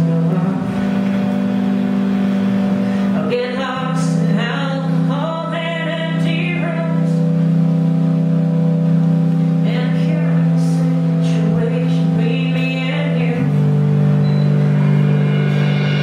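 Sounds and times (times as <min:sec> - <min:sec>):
woman singing into a microphone: 0:03.1 - 0:07.4, 0:09.6 - 0:14.0.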